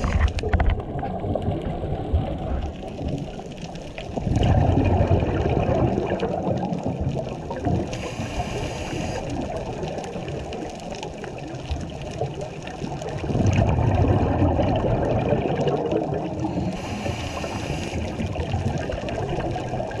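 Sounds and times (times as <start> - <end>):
exhaled bubbles gurgling: 0.0 - 20.0
regulator inhale hiss: 7.9 - 9.3, 16.4 - 18.3.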